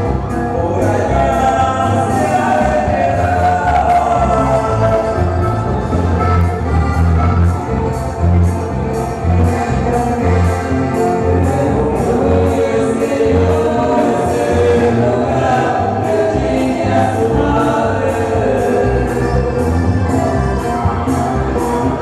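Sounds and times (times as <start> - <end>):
band music with singing: 0.0 - 22.0
steady bass beat: 0.1 - 22.0.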